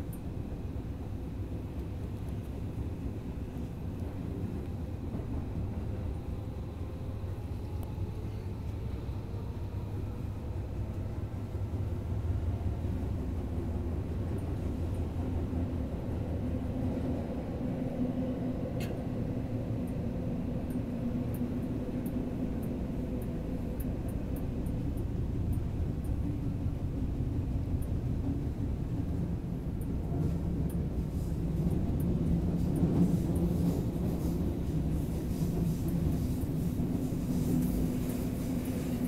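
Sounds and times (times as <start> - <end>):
subway train rumbling in tunnel: 0.0 - 39.0.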